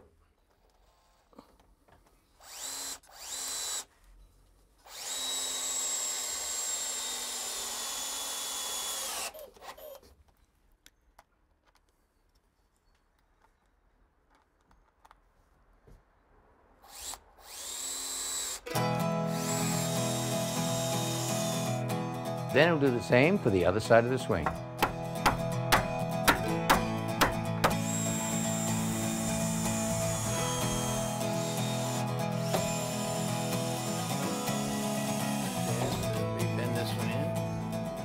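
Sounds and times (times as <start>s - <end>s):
cordless drill driving screws: 2.4s - 3.9s, 4.8s - 10.1s, 16.8s - 21.8s, 26.7s - 36.2s
music: 18.7s - 38.0s.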